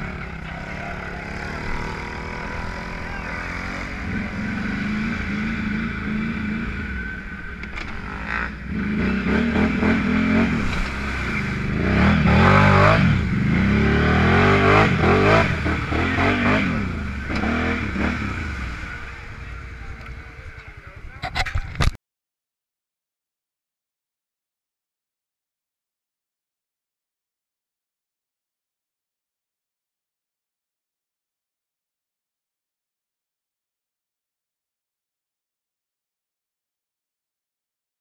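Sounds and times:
atv engine revving: 0.0 - 21.9.

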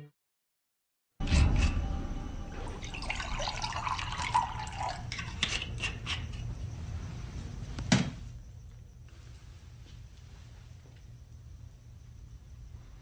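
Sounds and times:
drink pouring into glass: 2.6 - 5.4
glass clinking: 2.6 - 5.5.

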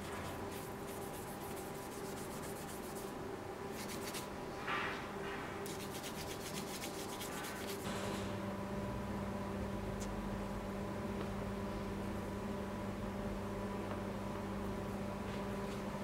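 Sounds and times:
sanding metal scraping strokes: 0.0 - 3.2, 5.6 - 7.9.

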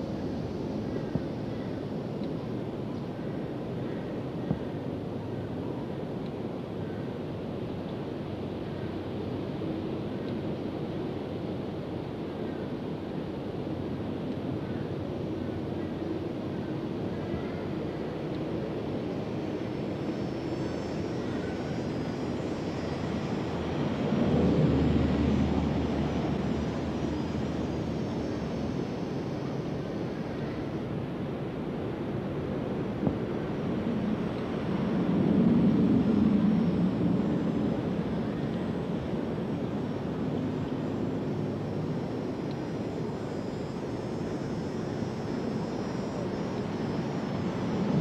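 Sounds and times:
rushing drone: 16.4 - 48.0.

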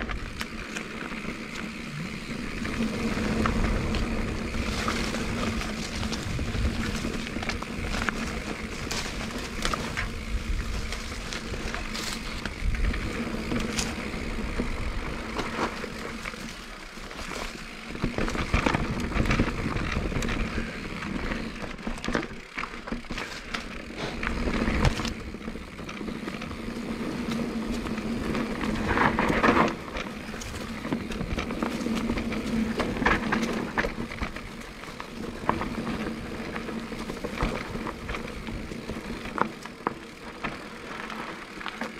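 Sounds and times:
bike knocking and rattling: 0.0 - 41.9
tyres rumbling over dirt: 0.0 - 41.9.

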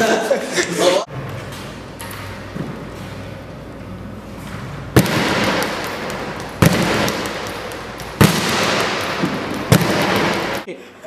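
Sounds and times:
sharp bangs: 4.9 - 10.7.

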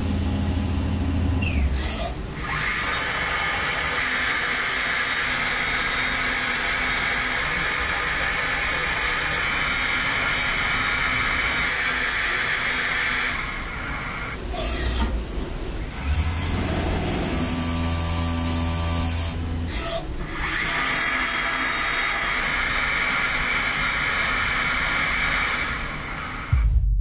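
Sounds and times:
low machine hum: 0.0 - 3.4.

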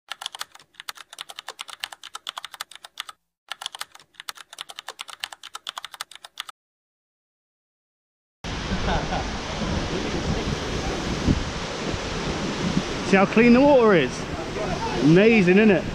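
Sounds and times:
keyboard key clicks: 0.1 - 6.5.

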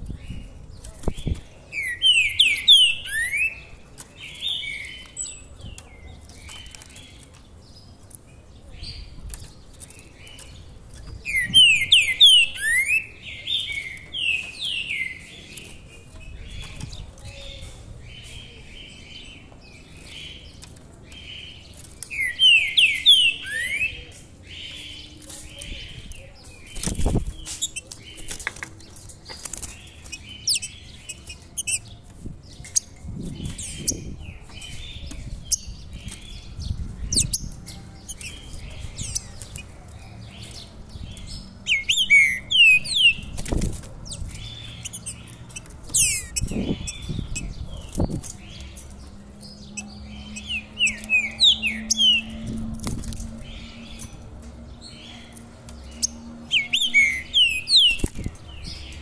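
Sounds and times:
bird chirping and singing: 0.0 - 59.0
bird fluttering in cage: 26.7 - 30.3.

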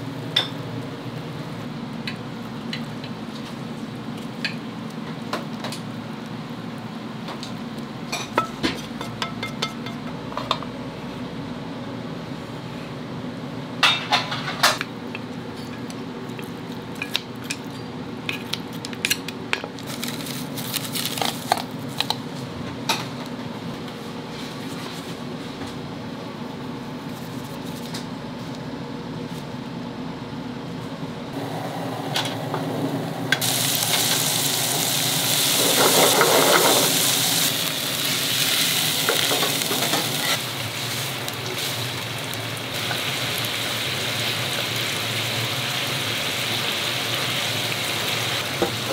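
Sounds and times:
steady low hum: 21.7 - 35.4
food sizzling in a pan: 33.4 - 48.9.

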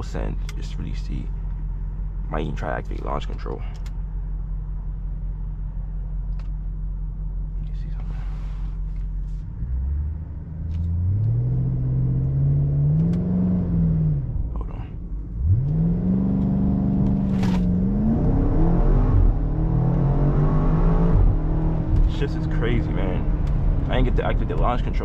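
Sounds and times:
car engine accelerating: 9.0 - 25.0.

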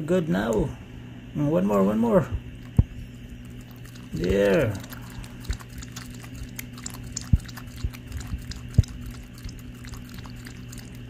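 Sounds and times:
dog lapping water from metal bowl: 2.7 - 11.0.

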